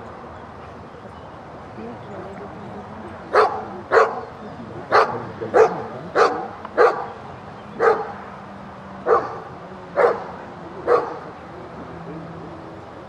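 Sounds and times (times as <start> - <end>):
dog barking: 3.3 - 4.3, 4.9 - 7.1, 7.8 - 8.1, 9.1 - 10.3, 10.9 - 11.2.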